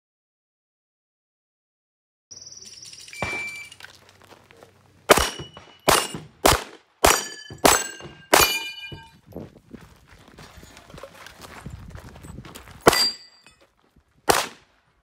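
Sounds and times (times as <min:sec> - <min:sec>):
shot timer beep: 0:02.4 - 0:03.8
pistol shots: 0:03.2 - 0:03.8, 0:05.1 - 0:09.0, 0:14.3 - 0:14.6
steel plates clanging: 0:07.1 - 0:09.2, 0:12.9 - 0:13.6.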